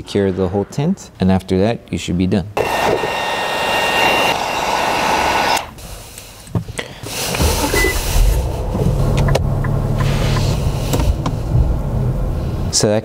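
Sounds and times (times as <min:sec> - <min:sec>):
heat gun blowing: 0:02.6 - 0:08.4
car engine idling: 0:07.3 - 0:12.8.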